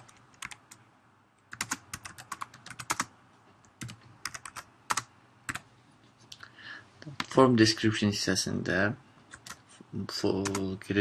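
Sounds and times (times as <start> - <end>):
keyboard typing: 0.0 - 0.8, 1.5 - 5.7, 9.3 - 9.6, 10.4 - 10.7.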